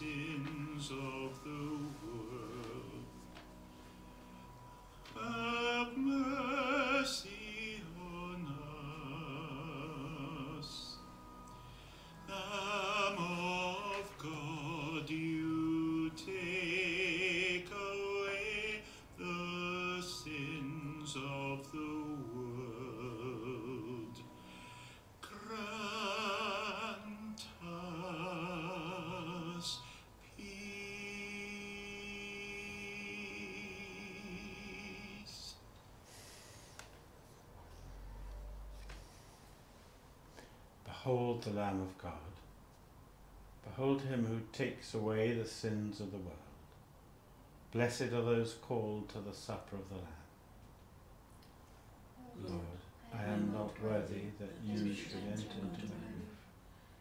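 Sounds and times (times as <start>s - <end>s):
classical singer with vibrato: 0.0s - 3.5s, 4.9s - 35.7s, 52.2s - 57.0s.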